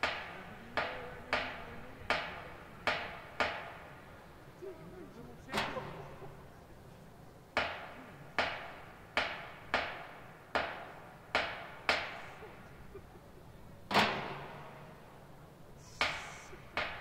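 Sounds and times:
drum strikes with echo: 0.0 - 4.2.

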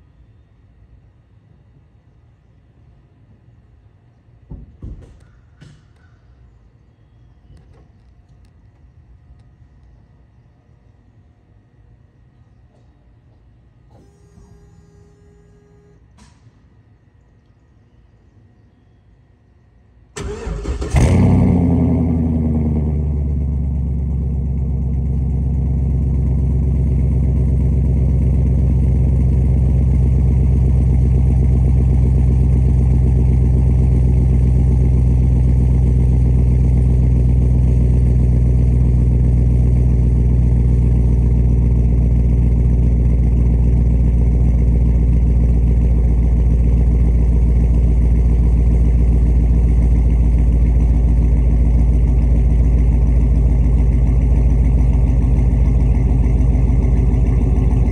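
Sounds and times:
car engine idling: 20.2 - 57.9.

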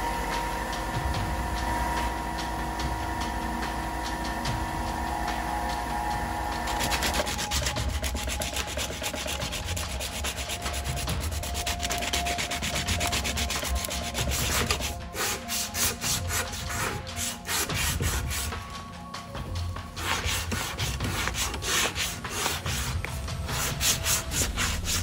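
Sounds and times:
sanding wood by hand: 6.5 - 18.8, 19.9 - 25.0.

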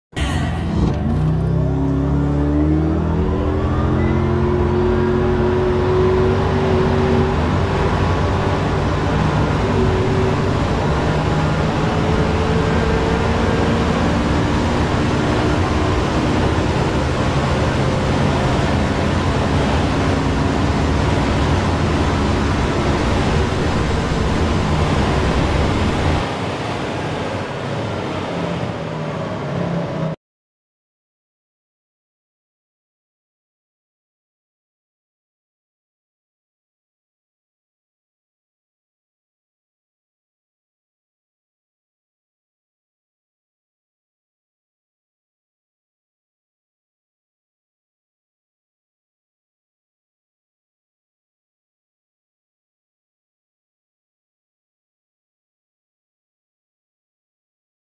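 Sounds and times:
car engine accelerating: 0.1 - 30.2
wind and tyre noise: 0.1 - 30.2.

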